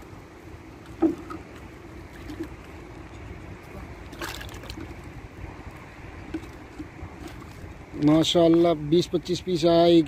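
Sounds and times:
fish plopping into water: 4.1 - 4.9.

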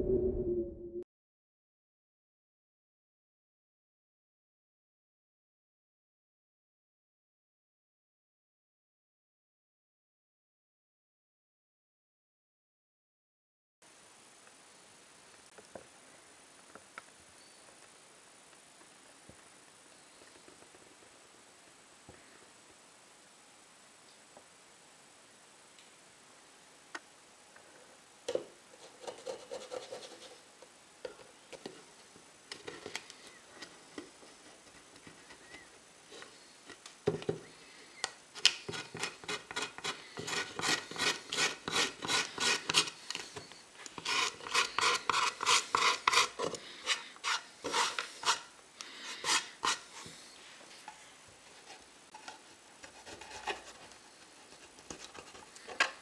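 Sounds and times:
razor blade scraping wood: 38.4 - 50.3.

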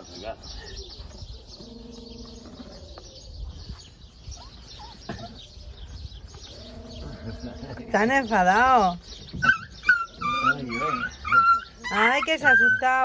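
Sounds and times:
small birds chirping: 0.0 - 13.0
puppies whining and whimpering: 4.3 - 5.4, 9.3 - 13.0.

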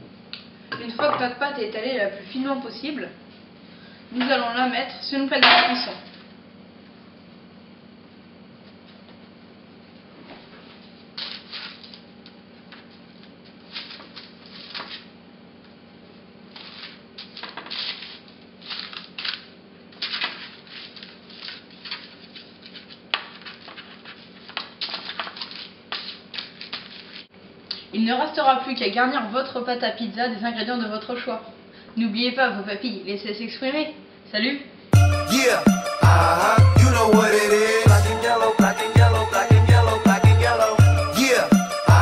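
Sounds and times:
parchment paper rustling and crinkling: 10.2 - 15.1, 16.5 - 27.3.

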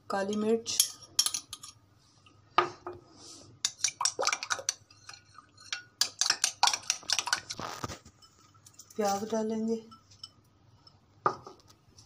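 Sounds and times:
whisk clicking against glass bowl: 3.7 - 7.5.

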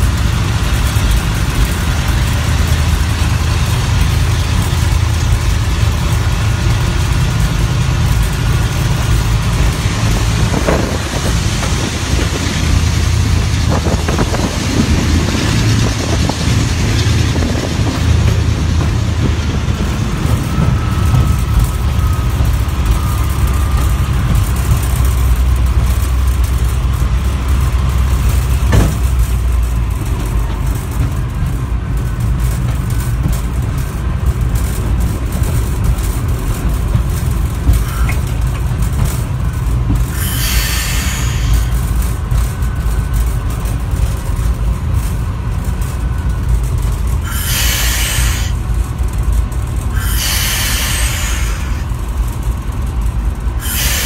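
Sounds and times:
locomotive diesel engine rumbling: 0.0 - 54.0
hiss of running noise: 35.5 - 42.5, 47.0 - 54.0.

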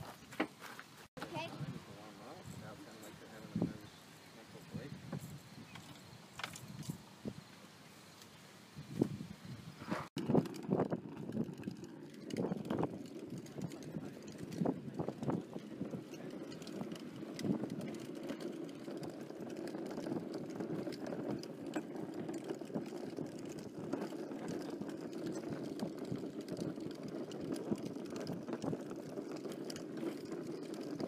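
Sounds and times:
cart wheels rolling on wet asphalt: 9.9 - 31.0.

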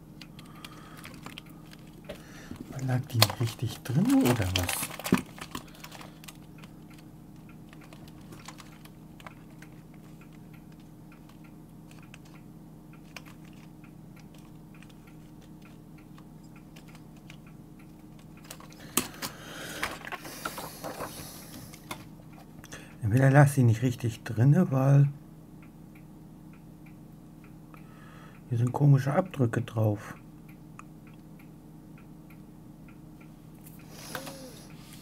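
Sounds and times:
low steady hum: 0.0 - 35.0
plastic foil clicking and rustling: 0.3 - 2.0, 2.6 - 7.1, 7.7 - 10.1.

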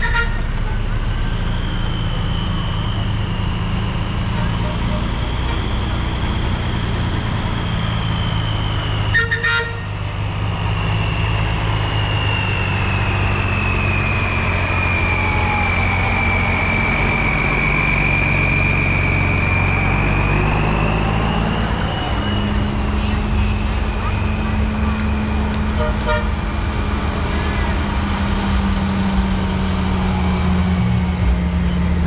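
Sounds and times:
short horn toot: 0.0 - 0.9
heavy engine running: 0.0 - 32.0
high siren tone: 0.0 - 32.0.

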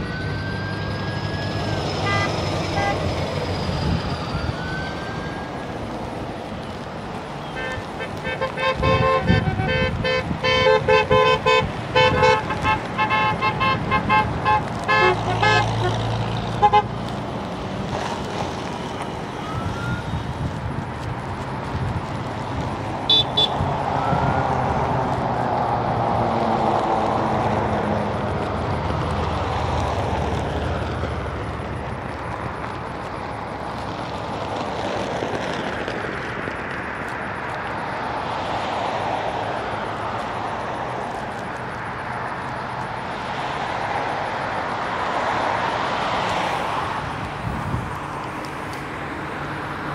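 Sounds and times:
cars passing: 0.0 - 49.9
car horns honking: 2.0 - 3.2, 7.4 - 17.0, 23.1 - 23.7.

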